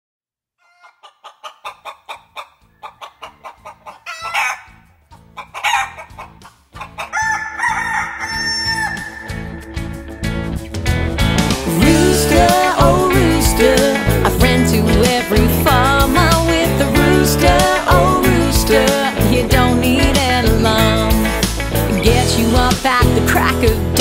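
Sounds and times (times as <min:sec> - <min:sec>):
chickens clucking: 0:00.6 - 0:10.6
rooster crowing: 0:02.7 - 0:04.8, 0:05.6 - 0:06.1, 0:07.0 - 0:10.3
rhythmic backing music: 0:05.1 - 0:24.0.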